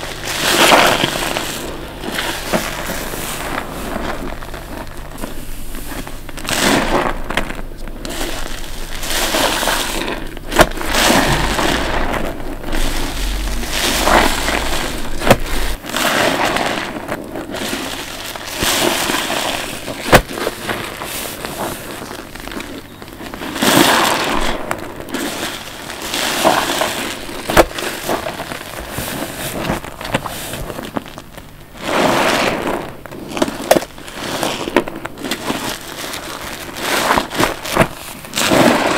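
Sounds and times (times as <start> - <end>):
crackles: 0.0 - 38.9.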